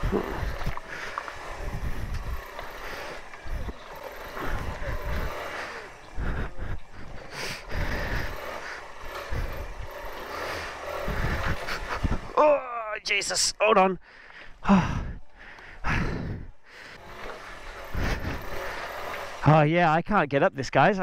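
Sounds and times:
motorcycle engine revving: 0.0s - 12.8s, 15.8s - 19.7s.

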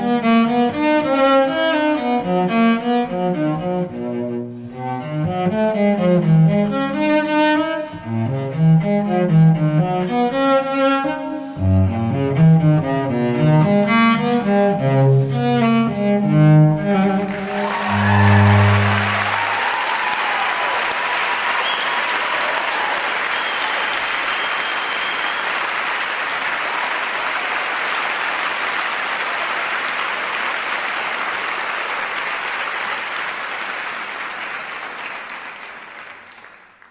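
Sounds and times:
classical music with bowed strings: 0.0s - 19.5s
audience applause: 17.0s - 36.9s.

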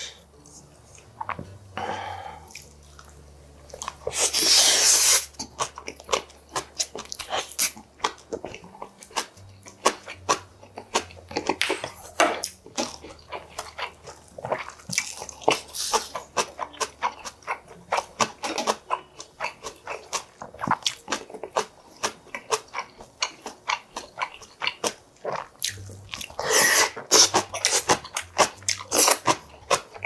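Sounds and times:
close chewing and crunching: 0.9s - 30.0s.

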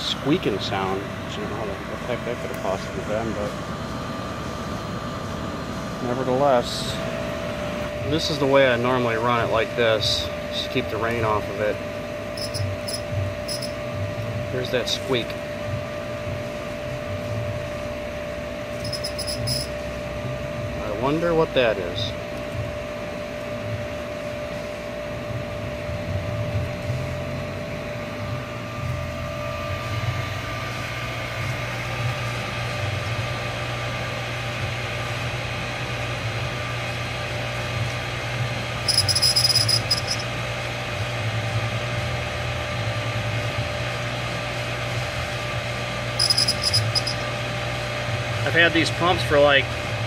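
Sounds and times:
sharp high-pitched sounds: 12.4s - 13.8s, 18.8s - 19.7s, 38.9s - 40.2s, 46.2s - 47.2s
thin high-pitched squeak: 18.8s - 19.7s, 38.9s - 40.2s, 46.2s - 47.2s.

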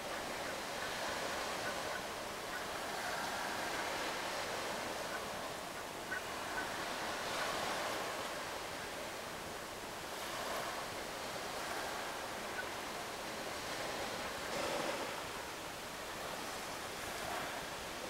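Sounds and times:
wind: 0.0s - 18.0s
sea water lapping: 10.1s - 15.5s.

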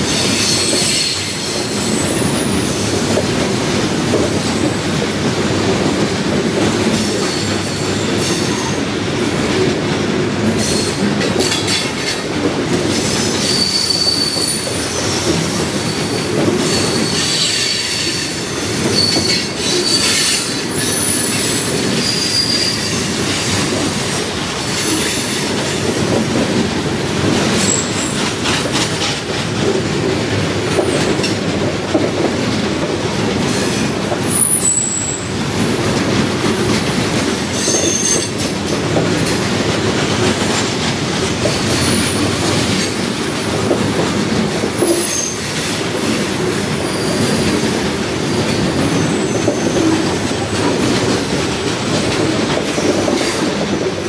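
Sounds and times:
train wheels rumbling on rail: 0.0s - 54.0s
high-pitched wheel squeals: 13.4s - 14.7s, 16.1s - 23.2s, 34.3s - 35.9s.

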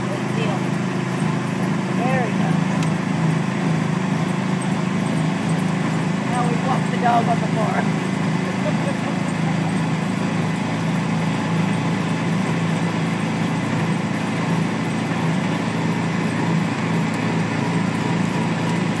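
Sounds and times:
tyres on gravel road: 0.0s - 19.0s
vehicle engine hum: 0.0s - 19.0s.

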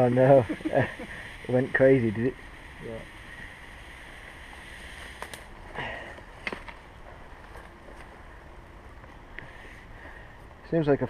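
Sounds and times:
outdoor background hiss: 0.0s - 11.0s
footsteps clicks and rustles: 6.0s - 10.6s.

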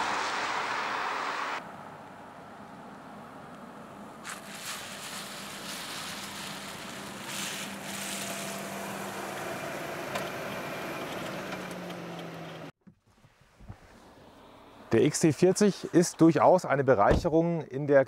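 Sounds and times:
tyres hissing on wet road: 0.0s - 1.6s, 4.2s - 9.9s.

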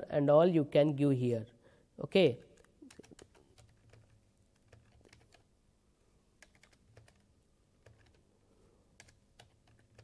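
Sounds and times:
computer keyboard keystrokes: 2.6s - 5.4s, 6.4s - 7.2s, 7.8s - 8.2s, 9.0s - 10.0s.

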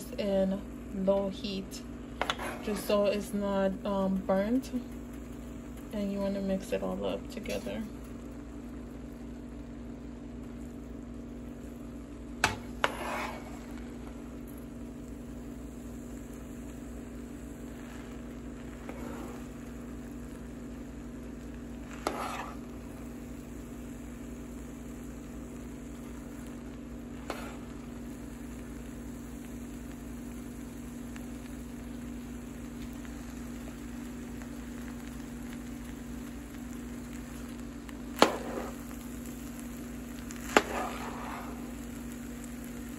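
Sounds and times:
faint sizzle: 0.0s - 42.9s
low hum: 0.0s - 42.9s
spatula stirring food in a pan: 1.4s - 3.4s, 12.0s - 24.8s, 25.8s - 31.6s, 32.7s - 42.9s.

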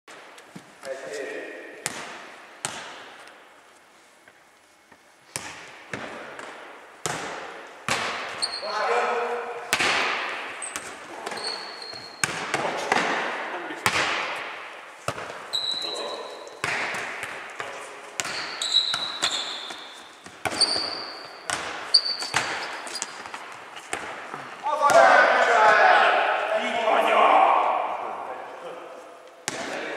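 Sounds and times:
ball thudding on hall floor: 5.3s - 8.5s, 9.6s - 15.8s, 16.6s - 25.2s
shoes squeaking on floor: 8.2s - 9.0s, 10.6s - 12.4s, 15.0s - 16.6s, 17.6s - 24.7s.

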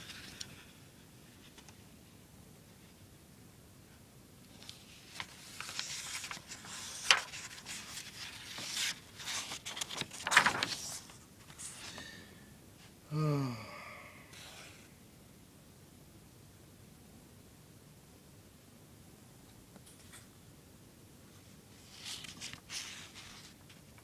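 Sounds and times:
book pages rustling: 4.5s - 12.1s, 21.7s - 24.0s
person sighing: 13.0s - 15.0s.

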